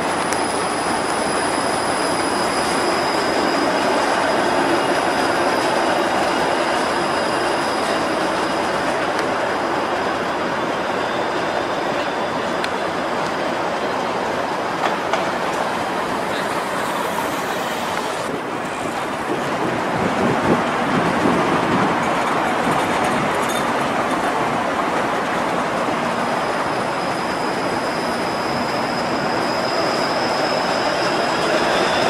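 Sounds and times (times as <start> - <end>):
thin high whine: 0.0 - 9.2
streetcar running on rails: 0.0 - 32.0.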